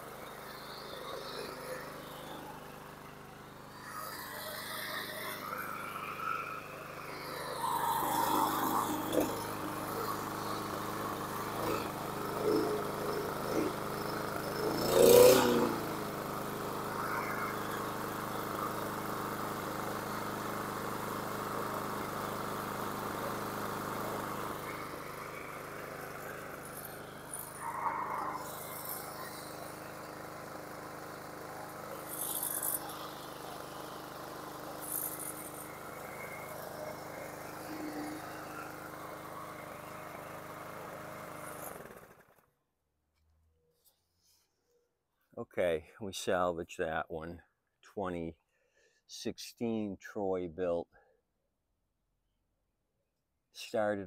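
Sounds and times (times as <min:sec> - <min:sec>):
mower engine idling: 0:00.0 - 0:42.5.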